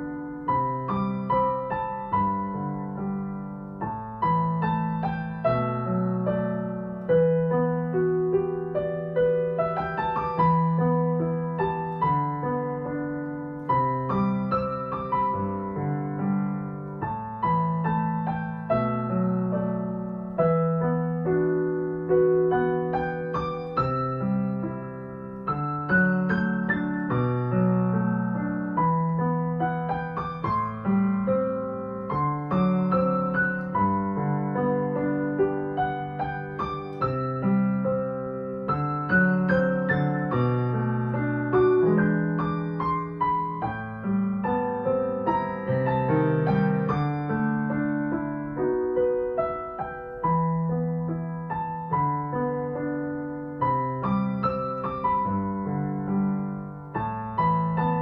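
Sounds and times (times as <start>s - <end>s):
slow gentle piano piece: 0.0s - 58.0s.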